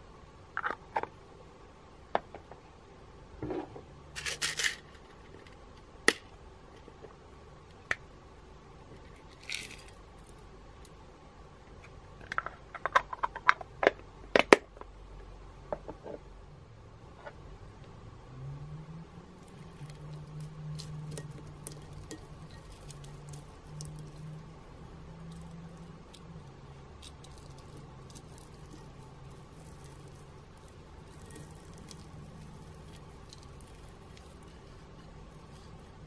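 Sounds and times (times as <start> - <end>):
glitter hissing pour: 19.3 - 35.9
sequins clicking on glass: 19.4 - 24.5, 25.2 - 35.8.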